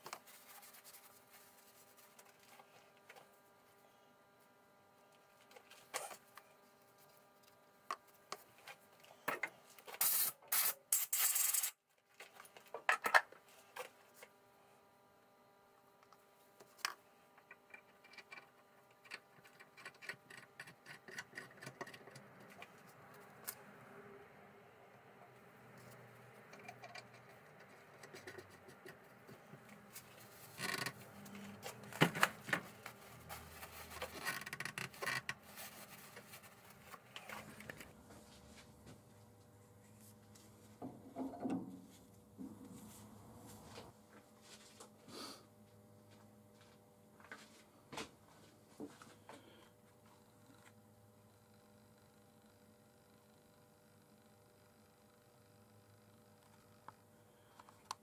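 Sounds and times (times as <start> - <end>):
rubbing and scraping strokes: 0.0 - 2.7
tissue rubbing: 0.1 - 2.2.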